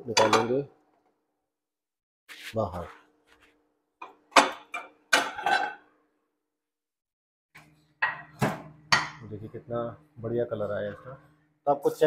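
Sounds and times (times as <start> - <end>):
glass dish scraping on stone counter: 5.3 - 5.8.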